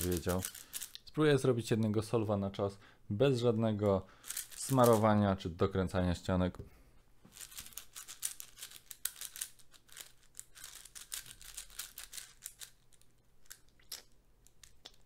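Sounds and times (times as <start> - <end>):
puzzle cube clicking and scraping: 0.0 - 1.0, 4.2 - 5.1, 7.3 - 15.0.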